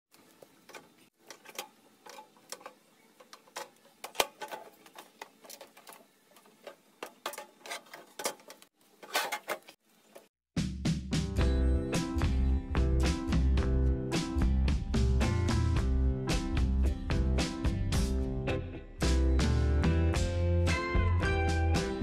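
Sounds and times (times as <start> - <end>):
music: 10.6 - 22.0.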